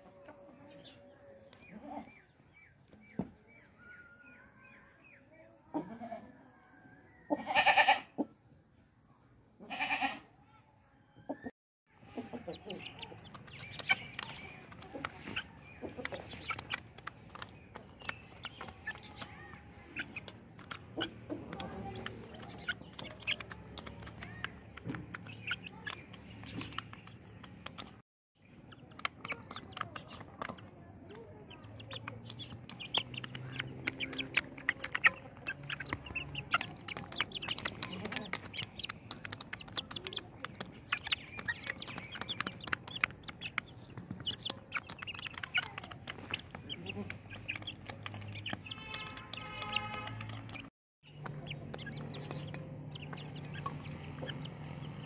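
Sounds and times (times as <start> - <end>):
chickens clucking: 11.3 - 55.0
beaks clicking on metal bowl: 12.3 - 28.0, 28.6 - 54.4.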